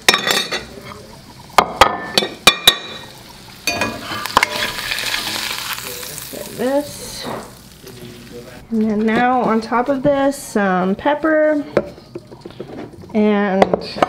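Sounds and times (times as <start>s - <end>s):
metal utensils clinking: 0.0s - 1.0s, 1.6s - 6.6s
egg sizzling in a skillet: 0.0s - 10.0s.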